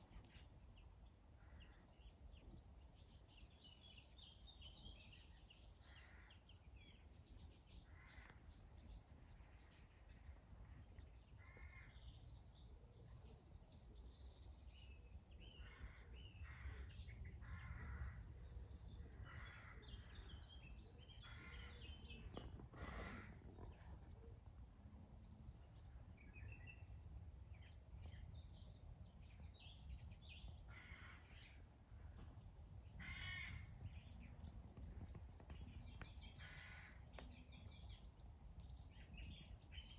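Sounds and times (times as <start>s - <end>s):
crow-like bird calls: 5.8s - 6.7s, 7.8s - 8.6s, 11.4s - 12.1s, 15.6s - 20.5s, 21.1s - 24.0s, 30.6s - 32.3s, 32.9s - 34.1s, 36.0s - 37.3s.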